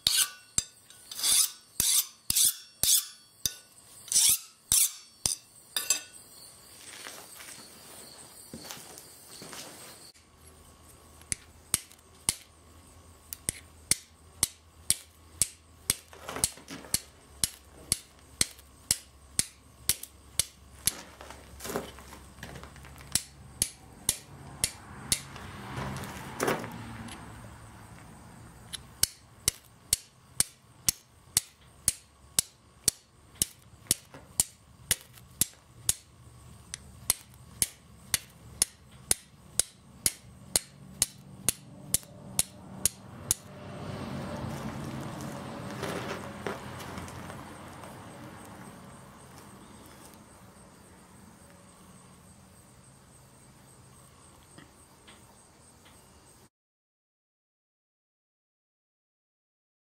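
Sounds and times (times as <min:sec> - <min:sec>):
steel striker clicking on flint: 0:11.2 - 0:12.5, 0:13.3 - 0:16.1, 0:16.9 - 0:20.6, 0:23.1 - 0:25.4, 0:28.7 - 0:36.1, 0:36.7 - 0:43.5.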